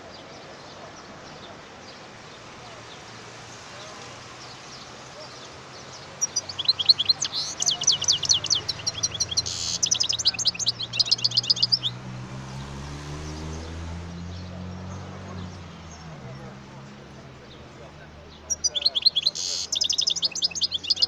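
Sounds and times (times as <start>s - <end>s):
goldfinch singing: 3.8s - 12.0s, 15.3s - 21.0s.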